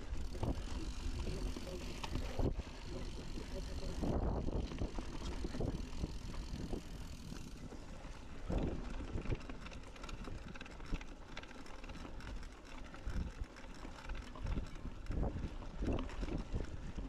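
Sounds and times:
wind buffeting microphone: 0.0 - 7.7, 14.4 - 17.0
bike knocking and rattling: 0.0 - 17.0
bike tyres rumbling: 0.0 - 17.0.

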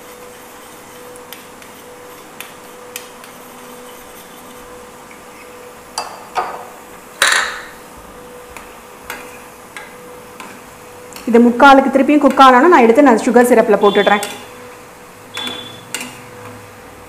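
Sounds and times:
batter frying in hot oil: 0.0 - 5.7.

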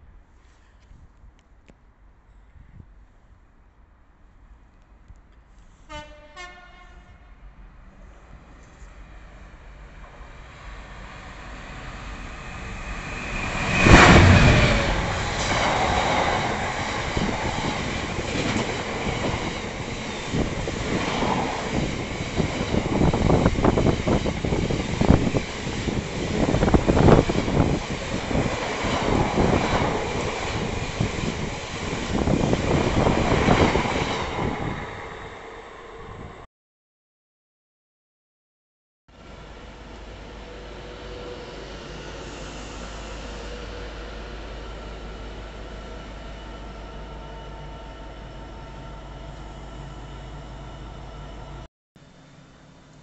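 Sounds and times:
locomotive passing: 8.4 - 36.4.

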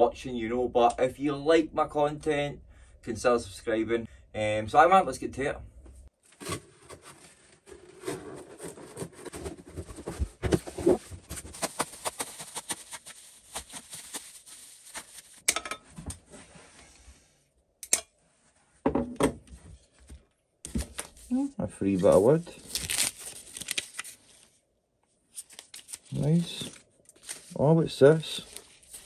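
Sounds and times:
packaging rustling: 6.2 - 15.4, 22.1 - 24.3, 25.4 - 27.6, 28.3 - 29.0.

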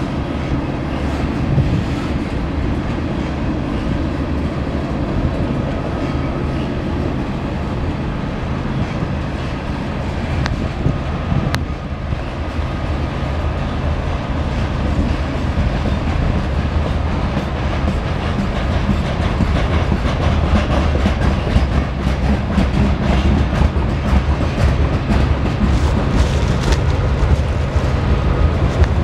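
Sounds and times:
train cars rumbling past: 0.0 - 29.0
wheels clicking over rail joints: 14.0 - 29.0.

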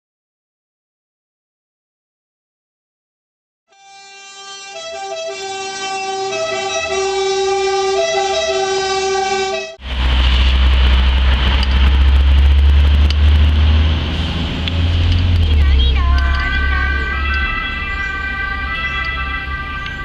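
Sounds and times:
emergency vehicle two-tone siren: 3.7 - 9.8, 15.9 - 20.0
loud low rumbling noise: 9.8 - 20.0.

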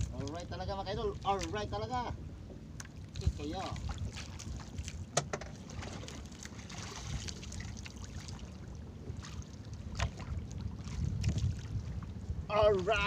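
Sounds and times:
sea water washing around boat: 0.0 - 13.0
wind buffeting microphone: 0.0 - 13.0
sharp knocks: 5.2 - 5.6.

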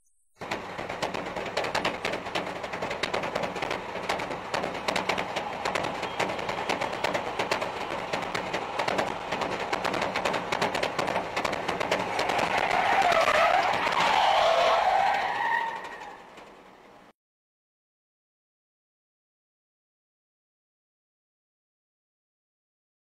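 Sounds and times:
car tyres squealing: 0.4 - 17.0
crackling road noise: 0.4 - 17.1.

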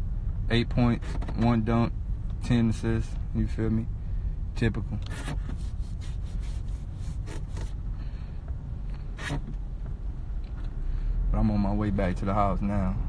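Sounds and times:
car rumble from inside cabin: 0.0 - 13.0
rustling and scraping near microphone: 0.9 - 1.5, 4.9 - 7.9.

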